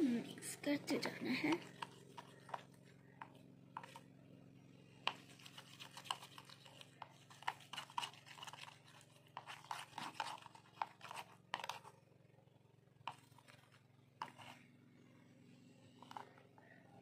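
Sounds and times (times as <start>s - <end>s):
faint steady hum: 0.0s - 17.0s
slime squishing while stirred: 0.6s - 4.1s, 5.0s - 12.0s, 13.1s - 14.6s, 16.0s - 16.7s.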